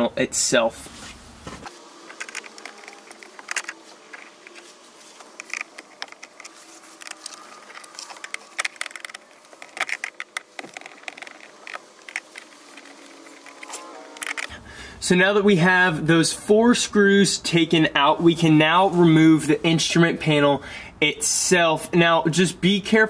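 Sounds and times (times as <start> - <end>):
screwdriver clicking and scraping: 1.6 - 14.5.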